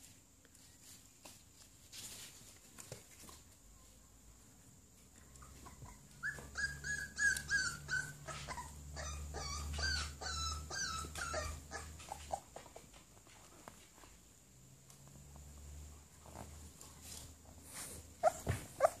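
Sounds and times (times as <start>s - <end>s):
dog whining: 5.4s - 12.6s, 18.2s - 19.0s.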